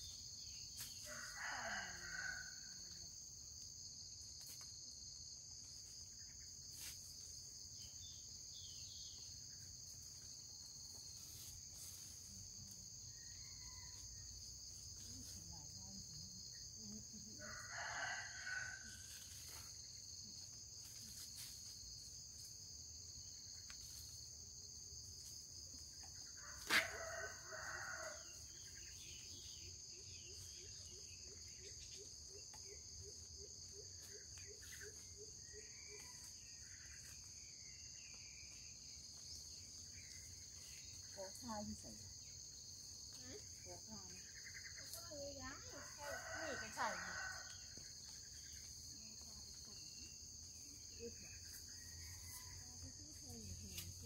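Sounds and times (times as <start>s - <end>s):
crickets and insects trilling: 0.0s - 54.0s
rooster crowing: 1.1s - 2.8s, 17.4s - 19.0s, 26.4s - 28.4s, 45.8s - 47.8s.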